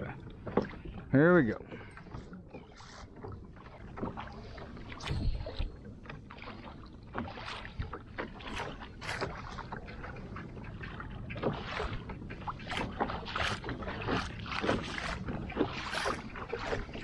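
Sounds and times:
water sloshing against kayak hull: 0.0 - 17.0
clicks and knocks from boat gear: 0.4 - 1.2.

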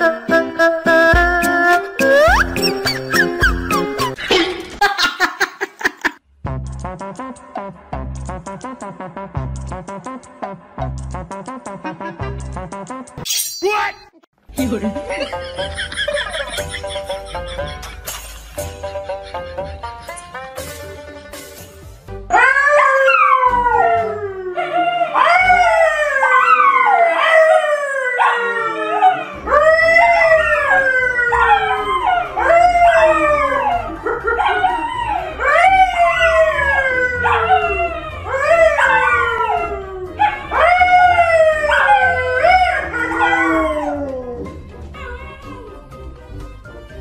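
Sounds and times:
man howling: 22.3 - 45.8
dogs howling: 22.3 - 46.0.

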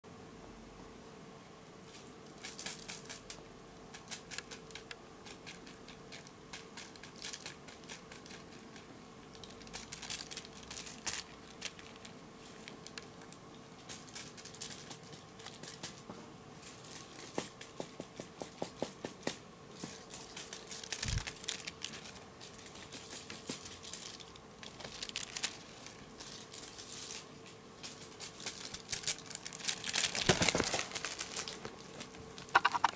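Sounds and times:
toy crinkling: 2.4 - 16.0, 19.8 - 32.9.

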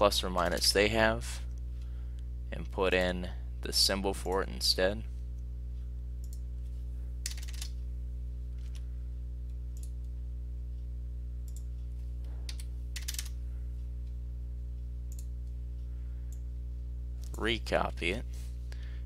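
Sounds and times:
low electrical hum: 0.0 - 19.0
keyboard and mouse clicks: 7.3 - 7.7, 12.5 - 13.3.

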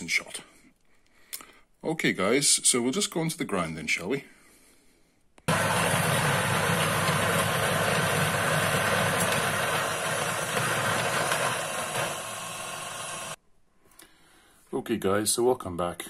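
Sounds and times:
coffee grinder grinding: 5.5 - 13.4.

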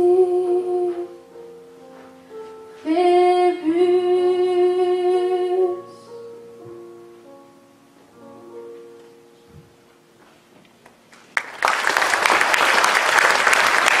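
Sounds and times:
soft held accompaniment notes: 0.0 - 10.8
audience applause: 11.1 - 14.0.

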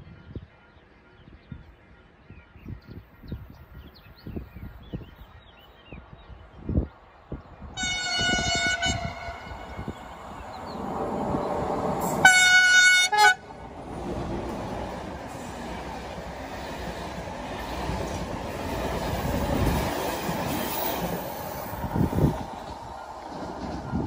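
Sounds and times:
train coaches rumbling past: 6.4 - 24.0
train horn blasts: 7.8 - 10.1, 12.0 - 13.6.

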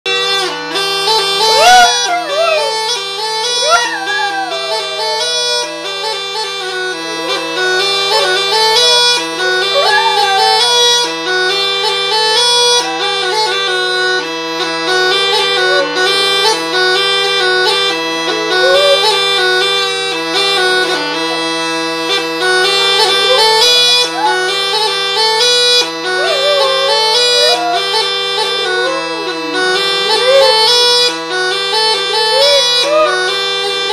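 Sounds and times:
bagpipes playing a melody: 0.0 - 33.9
dog howling: 1.4 - 11.2, 12.1 - 31.2, 32.1 - 33.4.

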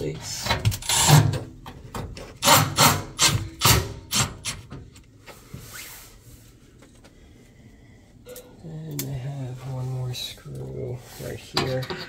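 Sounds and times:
impact driver driving screw into metal: 2.4 - 4.7.

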